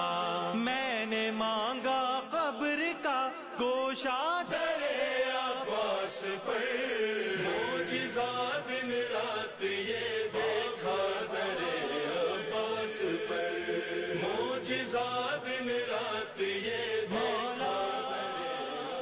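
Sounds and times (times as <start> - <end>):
men chanting devotional song: 0.0 - 19.0.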